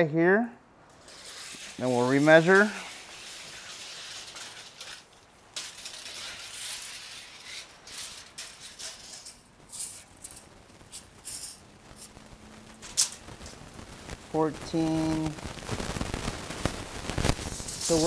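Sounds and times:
hands rustling and clicking tape measure: 0.9 - 12.2, 12.8 - 13.6, 17.2 - 18.0
metal tape blade rattling: 1.0 - 11.6.

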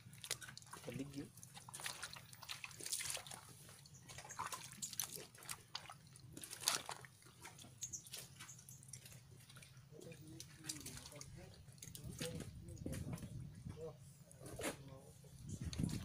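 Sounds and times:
footsteps wading through mud water: 0.0 - 16.0
water dripping: 0.1 - 12.2.

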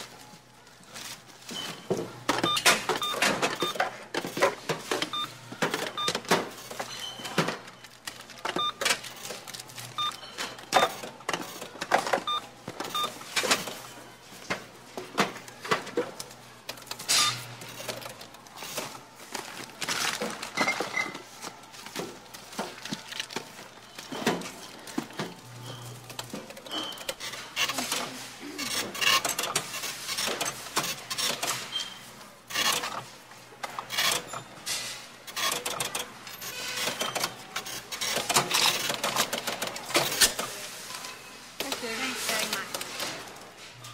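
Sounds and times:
goods and bags rustling: 0.0 - 35.3, 36.0 - 43.9
register beeps: 2.4 - 3.8, 5.1 - 6.3, 8.6 - 8.9, 10.0 - 10.9, 12.2 - 13.2.

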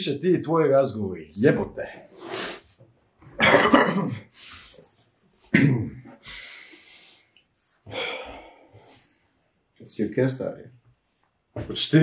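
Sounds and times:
man coughing: 3.4 - 4.3, 5.5 - 6.1
heavy breathing out: 6.1 - 9.2.

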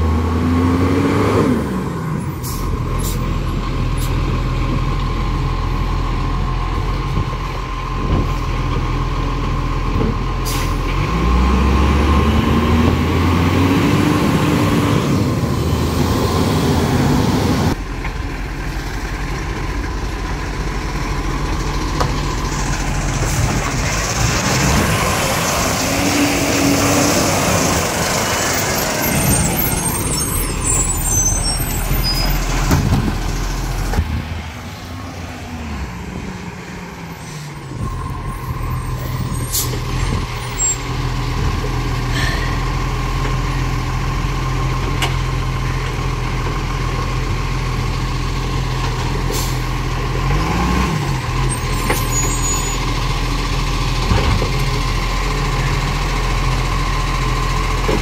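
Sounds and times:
garbage truck diesel engine revving: 0.0 - 58.0
air brakes hissing: 10.4 - 10.8, 37.2 - 40.8, 49.3 - 49.7.

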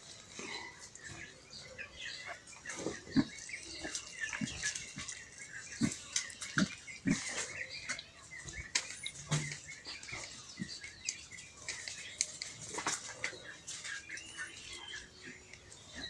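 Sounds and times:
small birds chirping: 0.0 - 16.0
animal grunting: 2.7 - 7.8.

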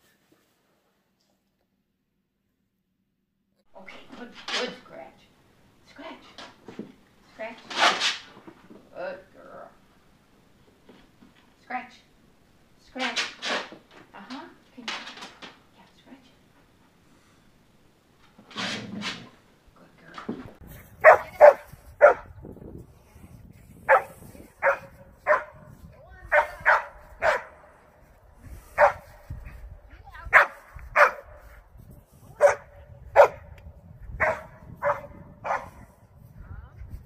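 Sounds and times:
dog barking: 21.0 - 22.3, 23.9 - 25.7, 26.3 - 27.6, 28.8 - 29.1, 30.3 - 31.4, 32.4 - 33.5, 34.2 - 35.9.

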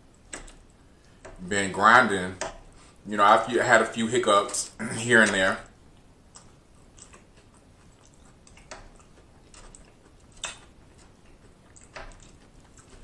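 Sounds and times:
mouth clicks and smacks: 5.2 - 13.0
man chewing noodles: 5.6 - 13.0.

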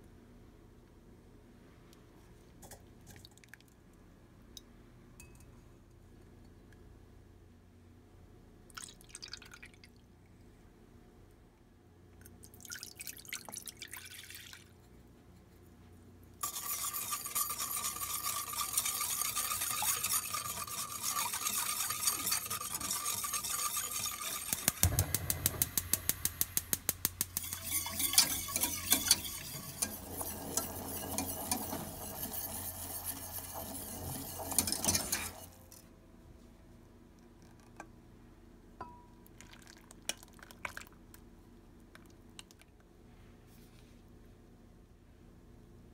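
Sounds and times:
whisk scraping a metal pan: 16.4 - 25.6, 27.2 - 35.8
low hum: 24.6 - 27.6.

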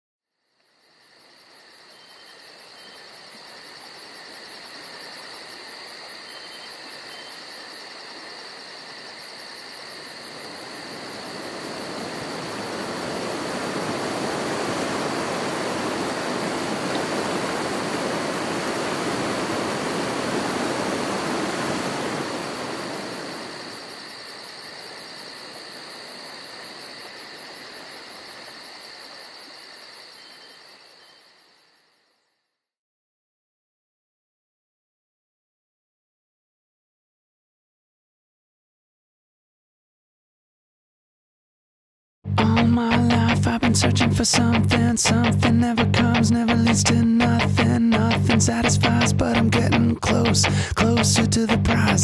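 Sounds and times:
insects trilling: 0.3 - 32.4
river rushing: 10.2 - 23.8.

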